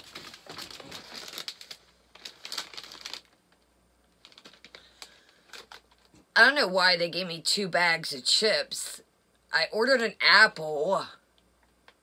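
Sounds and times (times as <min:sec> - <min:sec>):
food packaging crinkling: 0:00.0 - 0:06.2.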